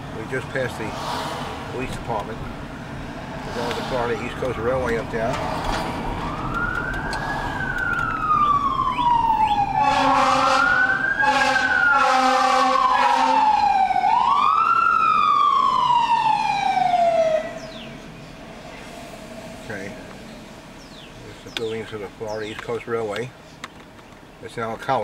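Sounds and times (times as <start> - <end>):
emergency vehicle siren wailing: 3.6 - 18.0
low horn blasts: 9.5 - 13.7.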